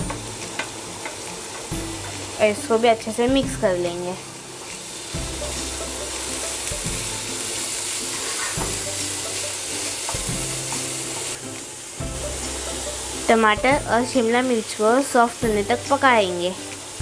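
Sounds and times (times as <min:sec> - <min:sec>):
background music: 0:00.0 - 0:17.0
vegetables sizzling in oil: 0:00.0 - 0:17.0
spatula stirring in pan: 0:05.3 - 0:11.4.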